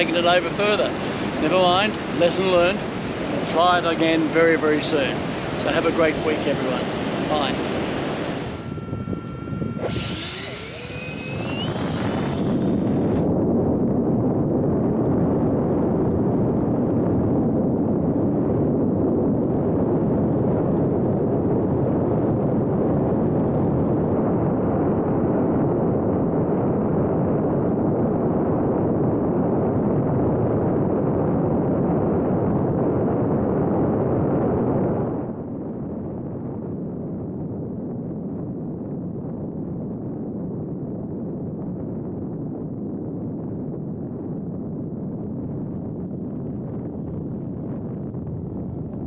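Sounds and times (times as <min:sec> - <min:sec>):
wind rushing: 0:00.0 - 0:13.5.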